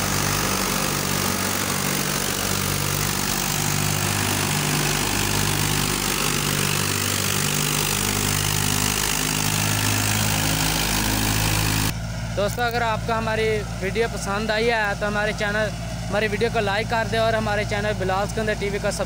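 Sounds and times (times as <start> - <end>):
threshing machine hiss: 0.0 - 12.8
tractor diesel engine running: 0.0 - 19.0.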